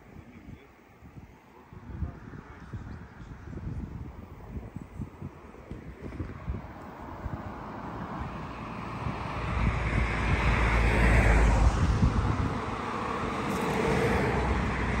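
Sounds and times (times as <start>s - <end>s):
wind buffeting microphone: 0.0s - 15.0s
vehicle passing: 6.0s - 15.0s.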